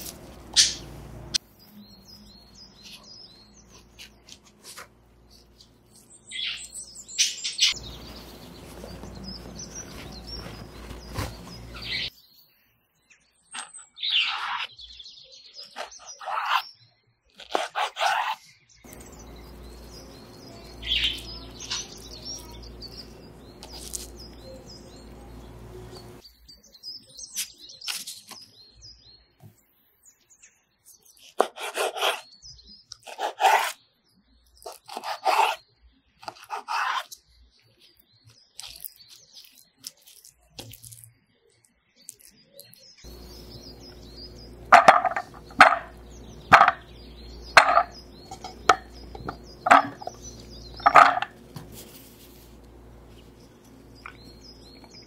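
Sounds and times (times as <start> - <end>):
small birds chirping: 0.0 - 55.0
knife cutting on wooden board: 31.3 - 32.2, 33.0 - 33.8, 34.7 - 35.6, 36.2 - 37.2.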